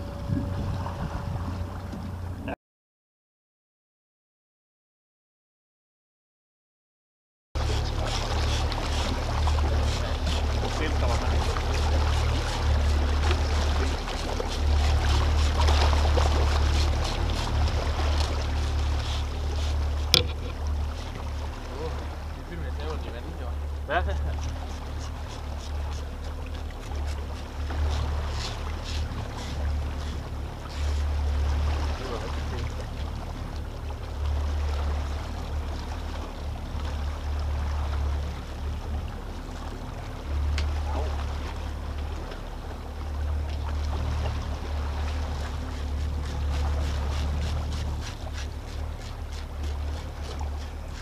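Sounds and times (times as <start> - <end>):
wind buffeting microphone: 0.0 - 2.4
boat engine hum: 0.0 - 2.6, 7.6 - 51.0
water around hull: 0.0 - 2.6, 7.6 - 51.0.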